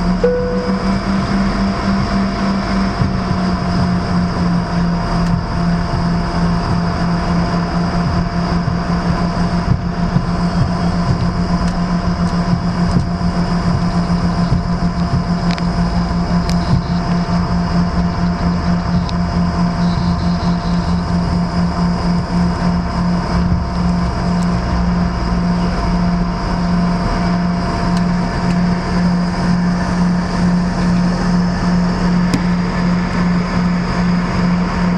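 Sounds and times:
jet engines humming: 0.0 - 34.9
steady tones: 0.1 - 4.8.

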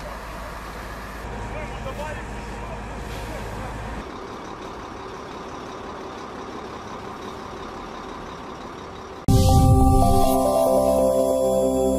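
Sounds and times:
loud music: 9.3 - 11.9.

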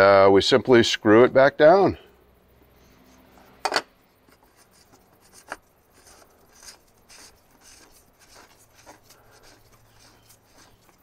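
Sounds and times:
cap scraping and rubbing: 4.3 - 11.0.

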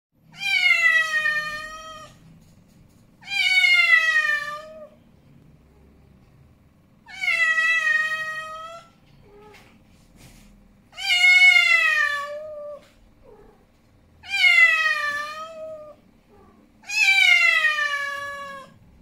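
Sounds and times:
angry cat meowing: 14.2 - 18.8.

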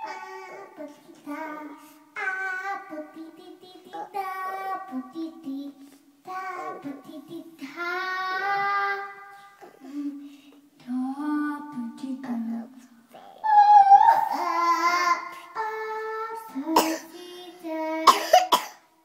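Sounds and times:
boy singing opera into microphone: 10.8 - 18.2.

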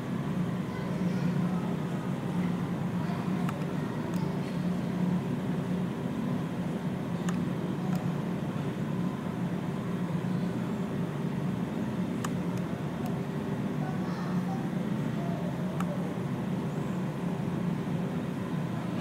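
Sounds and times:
steady low hum: 0.0 - 19.0
faint clicks: 7.2 - 8.1, 12.2 - 13.2.

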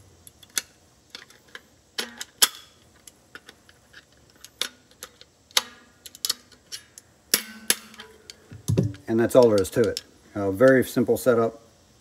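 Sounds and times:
metallic clicks and taps: 0.2 - 10.1.

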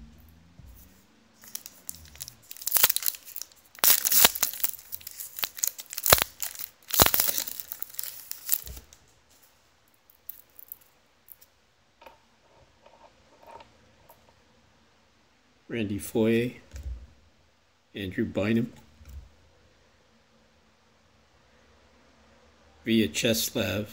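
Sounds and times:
wrapper tearing and crinkling: 1.4 - 8.9, 10.2 - 11.4.

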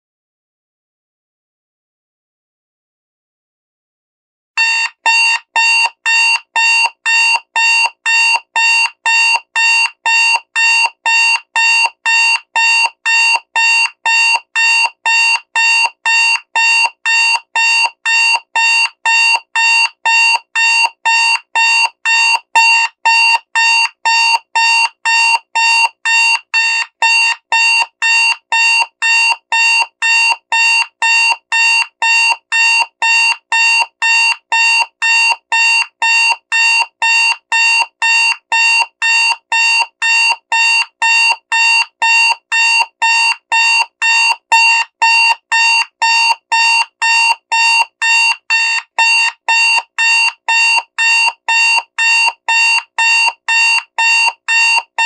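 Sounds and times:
alarm clock beeping: 4.6 - 55.0.

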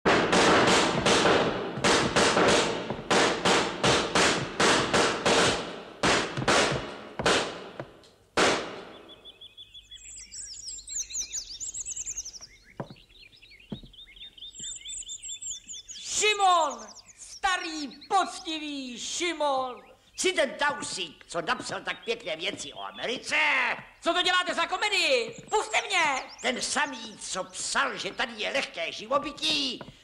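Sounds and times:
short knocks: 0.0 - 8.8, 13.7 - 14.0
sharp loud bangs: 0.0 - 9.1
bird-like chirping: 8.8 - 30.0.

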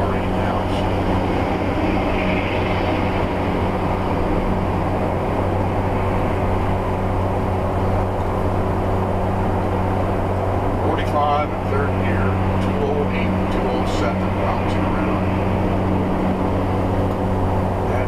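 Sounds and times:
diesel engine droning under load: 0.0 - 18.0
road and tyre noise: 0.0 - 18.0.

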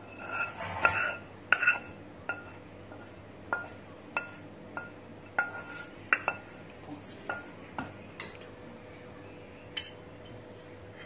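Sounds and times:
spatula scraping a pan: 0.0 - 8.0.

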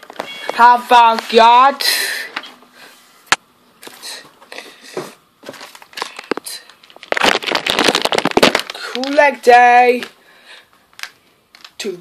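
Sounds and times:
packaging clicks and rustles: 5.4 - 9.3, 10.8 - 11.8
crinkling rustle of packaging: 5.4 - 11.8.

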